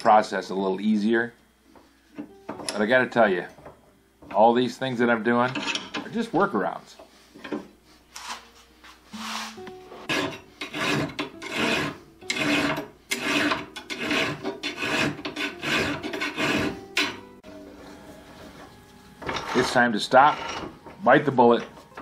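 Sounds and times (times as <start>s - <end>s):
hand file rasping on metal: 10.1s - 17.2s.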